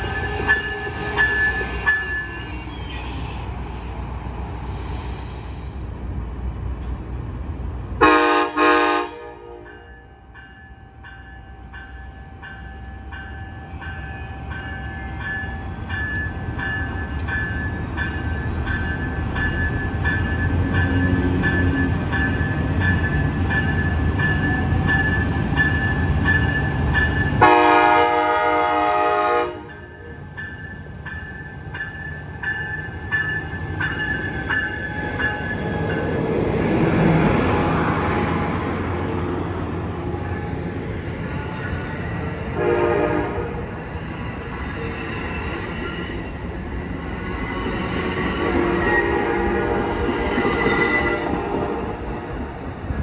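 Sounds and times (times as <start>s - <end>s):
train bell ringing: 0.0s - 3.0s, 9.6s - 27.8s, 29.6s - 36.4s, 43.5s - 51.5s
train rumbling by: 0.0s - 53.0s
train horn blast: 8.0s - 9.9s, 27.4s - 29.9s, 42.5s - 43.7s, 48.3s - 52.2s.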